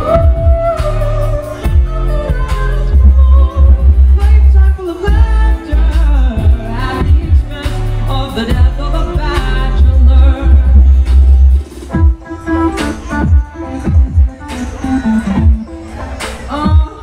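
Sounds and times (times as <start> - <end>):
young man singing: 0.0 - 11.3, 16.4 - 17.0
steady drum beat: 0.0 - 16.9
amplified backing music: 0.0 - 17.0.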